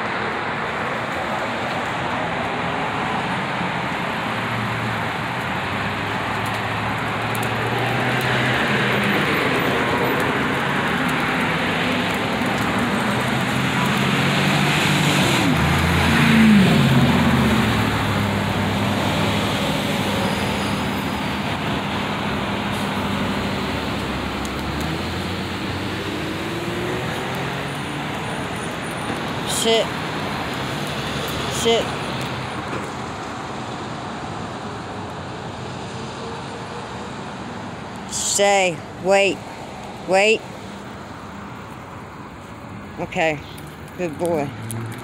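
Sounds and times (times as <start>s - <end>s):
road traffic noise: 0.0s - 45.0s
vehicle passing close: 0.0s - 45.0s.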